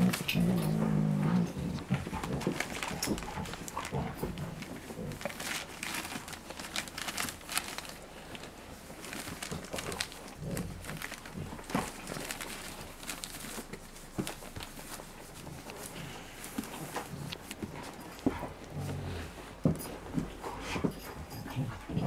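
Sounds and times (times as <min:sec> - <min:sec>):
puppies grunting: 0:00.0 - 0:22.0
newspaper crinkling: 0:01.6 - 0:18.7.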